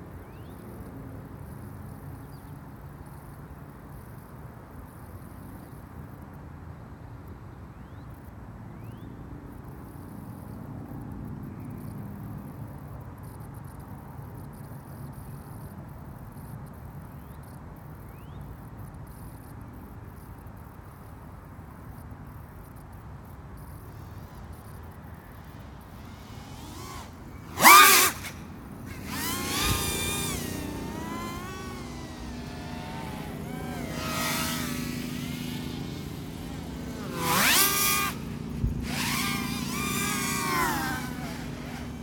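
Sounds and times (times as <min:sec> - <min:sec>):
distant quadcopter buzz: 0:21.9 - 0:42.0.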